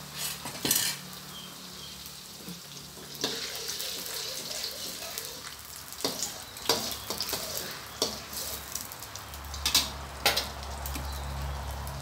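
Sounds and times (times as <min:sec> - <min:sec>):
metal spatula scraping wok: 0:00.0 - 0:01.2, 0:03.1 - 0:08.8
eggs sizzling in hot oil: 0:00.0 - 0:12.0.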